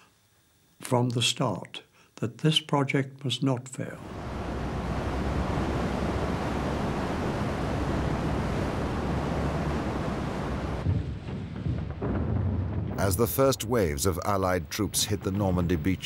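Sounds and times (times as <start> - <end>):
rough sea surf: 4.0 - 10.9
wind: 4.0 - 11.2.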